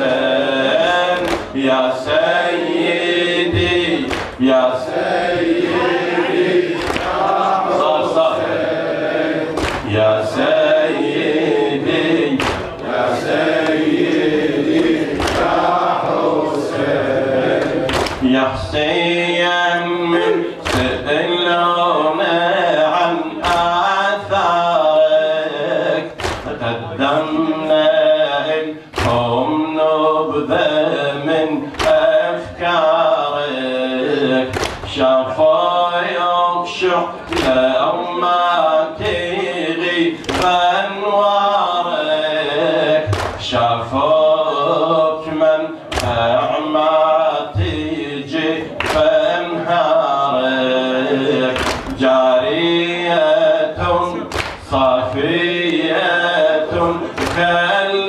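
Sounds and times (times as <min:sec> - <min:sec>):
congregation chanting: 0:00.0 - 0:58.0
man chanting into a microphone: 0:00.0 - 0:58.0
chest-beating slaps: 0:03.6 - 0:04.4, 0:06.7 - 0:07.3, 0:09.6 - 0:09.9, 0:12.4 - 0:13.0, 0:14.8 - 0:15.7, 0:17.6 - 0:18.3, 0:26.2 - 0:26.6, 0:37.3 - 0:37.7, 0:40.2 - 0:40.6, 0:45.9 - 0:46.2, 0:51.6 - 0:52.0, 0:54.3 - 0:54.7, 0:57.2 - 0:57.5.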